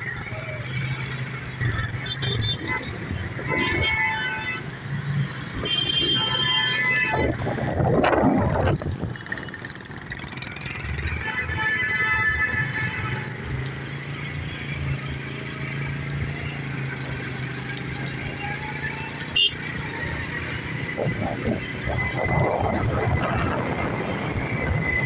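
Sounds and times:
road and wind noise: 0.0 - 25.0
vehicle horn: 2.0 - 4.7, 5.6 - 7.3, 11.2 - 13.4, 19.4 - 19.6
motorcycle engine running: 7.8 - 11.4.

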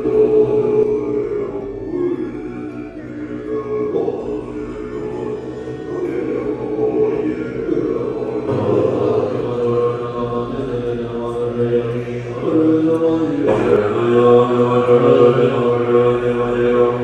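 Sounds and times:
monks chanting in unison: 0.0 - 17.0.

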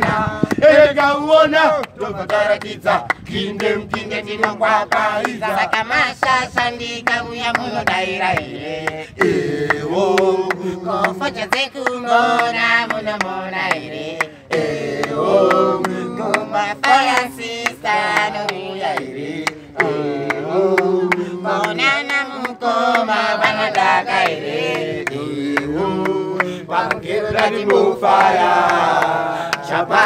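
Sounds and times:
beatboxing clicks and pops: 0.0 - 0.7
men singing and chanting: 0.0 - 30.0.

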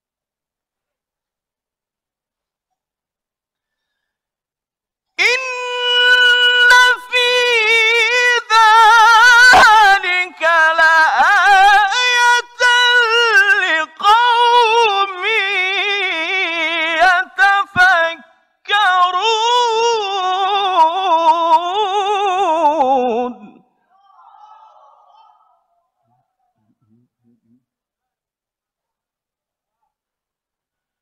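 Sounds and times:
man breathing: 3.5 - 4.4
man reciting melodically: 5.2 - 23.8.

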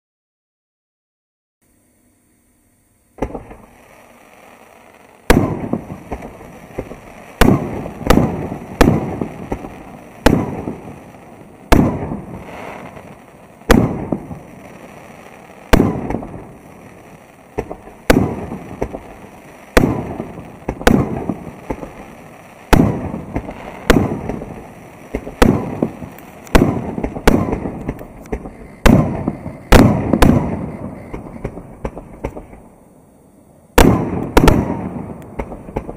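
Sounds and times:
fireworks bursting with sharp bangs: 3.1 - 35.9.

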